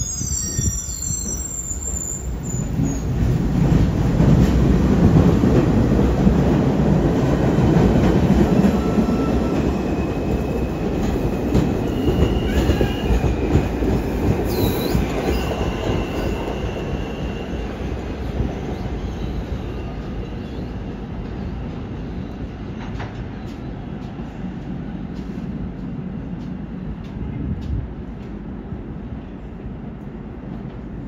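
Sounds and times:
high wheel squeal: 0.0s - 3.1s
subway train rumbling on rails: 0.0s - 31.0s.

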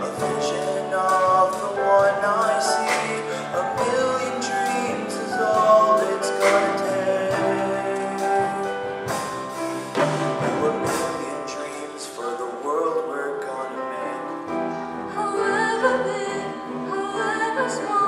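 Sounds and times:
instrumental accompaniment: 0.0s - 18.0s.

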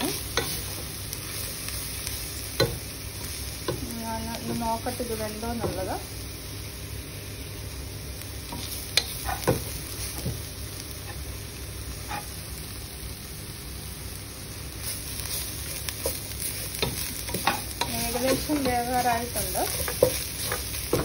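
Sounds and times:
spatula scraping in a pan: 0.0s - 3.4s, 8.5s - 10.4s, 12.0s - 12.4s, 14.8s - 21.0s
food sizzling: 0.0s - 21.0s.

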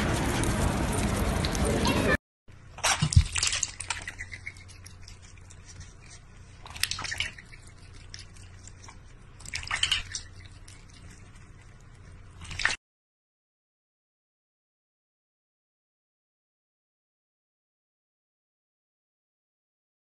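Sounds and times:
water dripping: 2.8s - 5.6s, 6.6s - 8.7s
cat splashing water in metal bowl: 2.8s - 11.8s, 12.4s - 12.8s.

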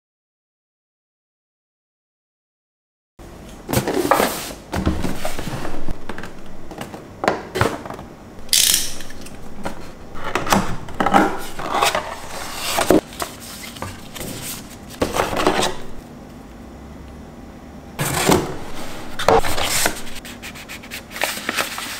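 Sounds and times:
cardboard box scraping and rustling: 10.2s - 16.0s, 18.0s - 21.9s.

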